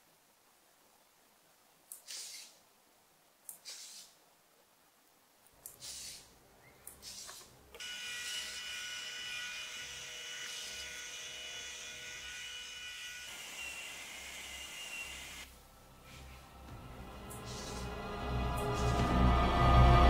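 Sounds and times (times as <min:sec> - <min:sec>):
small motor whining: 0:07.8 - 0:15.5.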